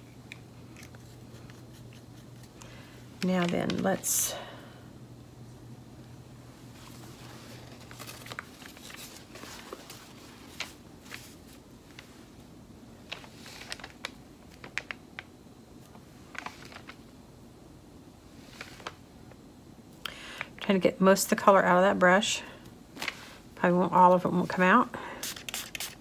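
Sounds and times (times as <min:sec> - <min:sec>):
paper towel crinkling: 0:06.7 - 0:12.3, 0:13.0 - 0:15.0.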